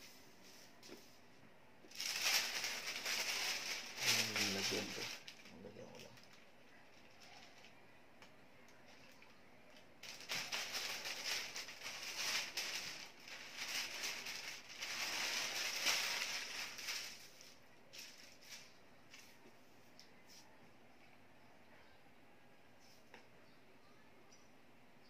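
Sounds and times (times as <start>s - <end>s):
paper rustling and crinkling: 1.9s - 7.7s, 10.0s - 19.4s.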